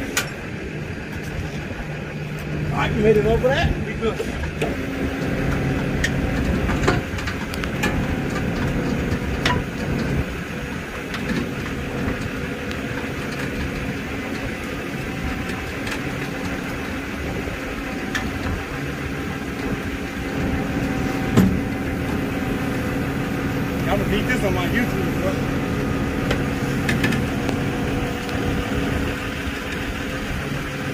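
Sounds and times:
truck engine running: 0.0 - 30.9
winch dragging car: 0.0 - 30.9
metal knocks: 20.4 - 22.2.

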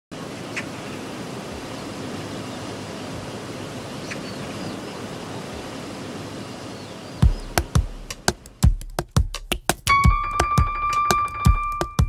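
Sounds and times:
steady hiss-like ambient noise: 0.2 - 8.6.

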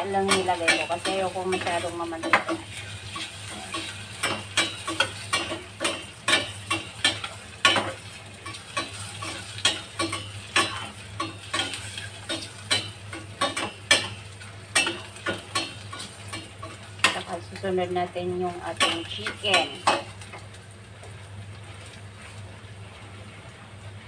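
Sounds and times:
light frying sizzle: 0.0 - 24.0.

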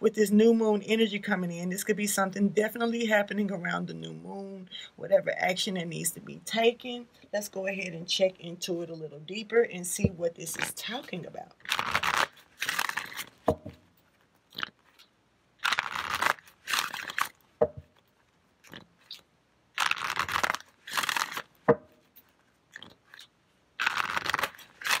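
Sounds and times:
cards being shuffled: 11.6 - 18.3, 19.8 - 22.4, 23.1 - 25.0.

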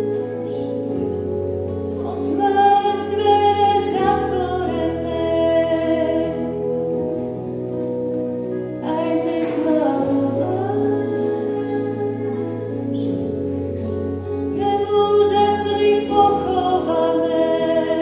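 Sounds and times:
person singing worship song: 0.0 - 1.2, 2.0 - 6.9, 8.8 - 13.4, 14.5 - 18.0.

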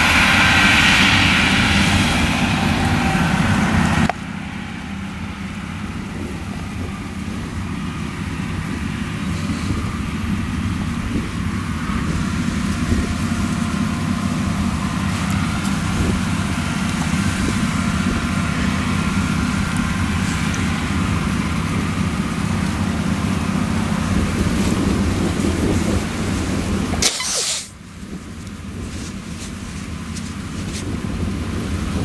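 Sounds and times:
combine harvester running: 0.0 - 32.0.

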